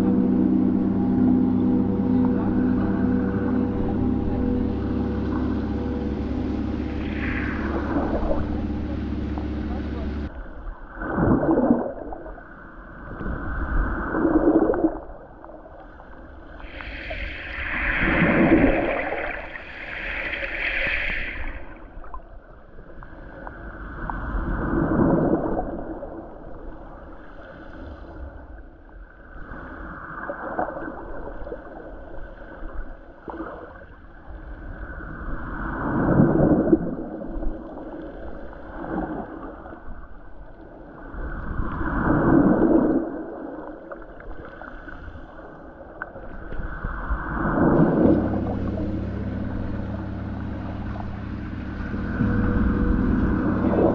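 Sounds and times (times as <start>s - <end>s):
gong with bending pitch: 0.0s - 10.3s, 47.7s - 53.9s
water sounds: 0.0s - 53.9s.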